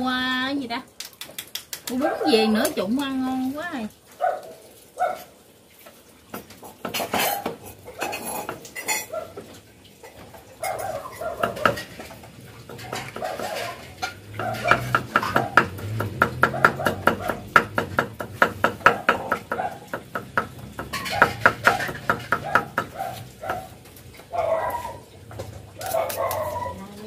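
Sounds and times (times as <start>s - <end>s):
clatter of bowls and utensils: 1.0s - 3.6s, 5.1s - 27.0s
cleaver chopping on wooden board: 11.4s - 11.8s, 14.4s - 23.6s.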